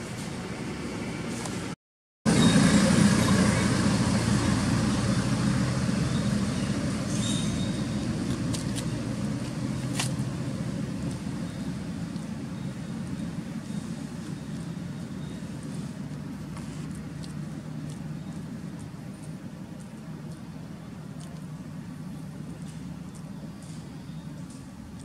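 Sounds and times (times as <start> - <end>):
motor vehicle passing: 2.3 - 12.9.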